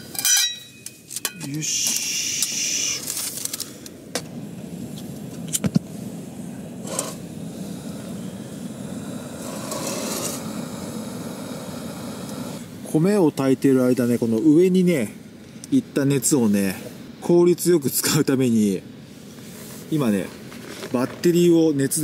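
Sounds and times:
camp stove burner: 0.0 - 22.0
rustling: 2.9 - 3.9, 19.3 - 21.4.

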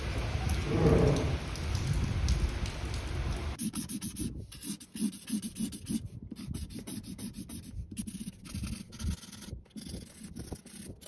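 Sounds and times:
marker scratching on paper: 3.6 - 11.0.

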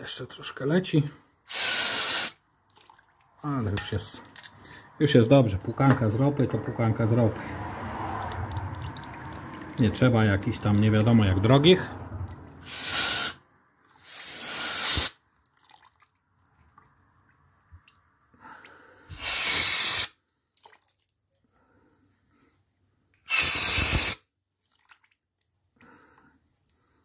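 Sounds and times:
aerosol spray can hissing: 1.5 - 2.4, 12.6 - 13.4, 14.0 - 15.2, 19.2 - 20.1, 23.3 - 24.2.

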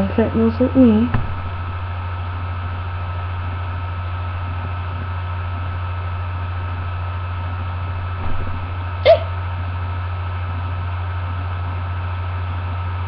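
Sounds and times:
low electrical hum with hiss: 0.0 - 13.0
soft low bump: 8.1 - 8.9.

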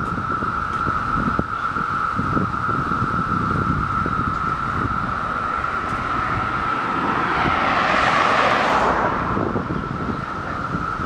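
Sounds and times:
cicadas droning: 0.0 - 11.0
wind buffeting microphone: 0.0 - 11.0
car passing: 3.0 - 11.0.

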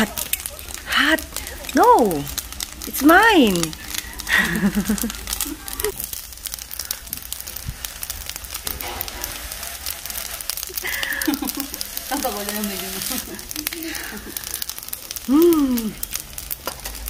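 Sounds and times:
rice sizzling in a metal pan: 0.0 - 17.0
metal spoon scraping a pan: 7.8 - 13.8.

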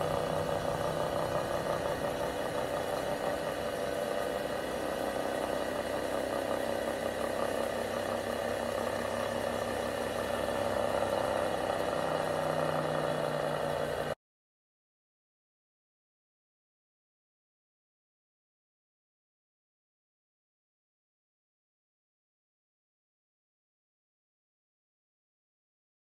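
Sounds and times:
electric motor humming and whining: 0.0 - 14.2
lower hum: 0.0 - 14.2.

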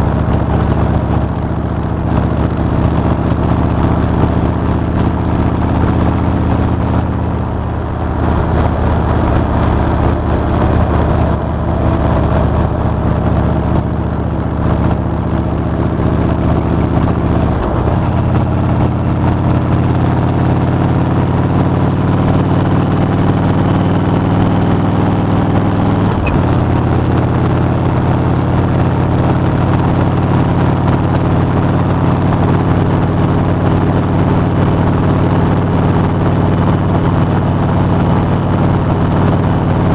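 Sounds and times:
motorcycle engine running: 0.0 - 39.9
rushing wind noise: 5.7 - 20.8.

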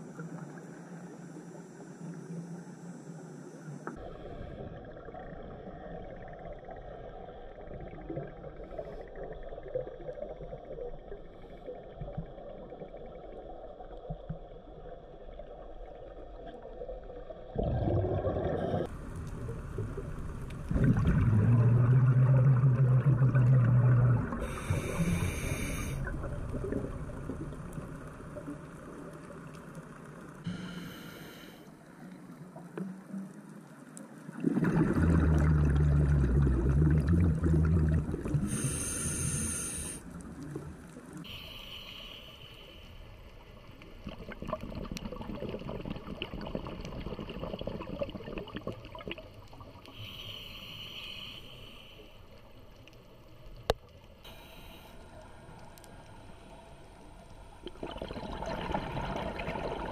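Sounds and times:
regulator exhalation bubbles buzzing: 17.6 - 27.5, 34.4 - 40.0, 57.6 - 59.9
regulator inhalation hiss: 24.4 - 26.1, 30.5 - 31.7, 38.5 - 40.1, 41.2 - 43.1, 49.9 - 52.3, 54.3 - 57.5.

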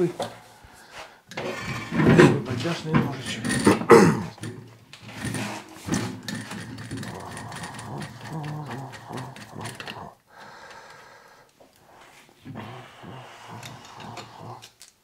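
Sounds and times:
abrasive wheel clicking and rattling: 1.8 - 11.0.

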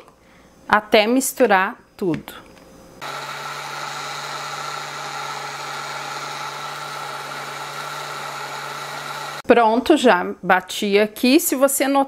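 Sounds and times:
blender motor humming: 3.0 - 9.4.

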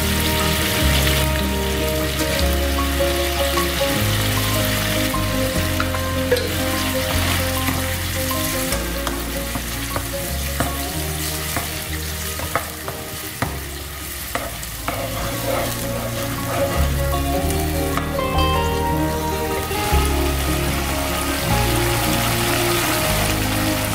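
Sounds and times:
background music with bass: 0.0 - 23.9
prawns sizzling in frying pan: 0.0 - 23.9.

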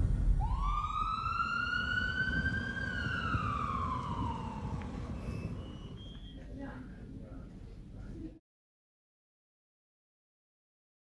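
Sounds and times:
low rumbling background: 0.0 - 8.2
ambulance siren wailing: 0.4 - 5.6.

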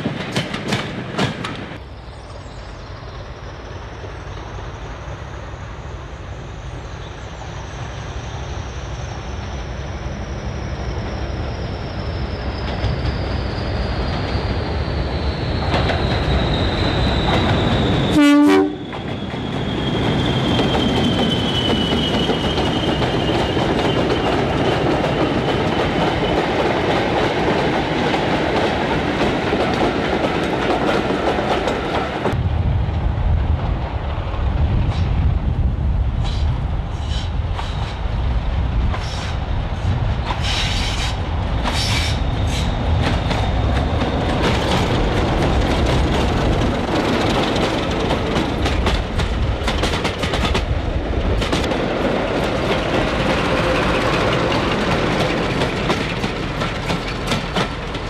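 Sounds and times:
diesel locomotive engine: 0.0 - 58.0
rail wheel noise: 0.0 - 58.0
sharp clanks and squeals: 9.0 - 24.3.

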